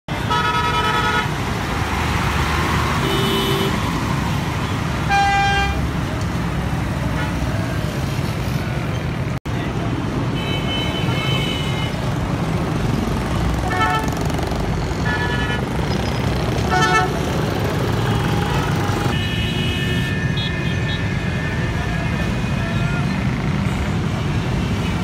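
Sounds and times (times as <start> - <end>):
vehicle horns honking: 0.1 - 1.4, 3.0 - 3.8, 5.0 - 5.8, 10.3 - 12.0, 13.6 - 14.2, 15.0 - 15.7, 16.6 - 17.3, 18.1 - 23.0
bus and motorcycle engines: 0.1 - 25.0.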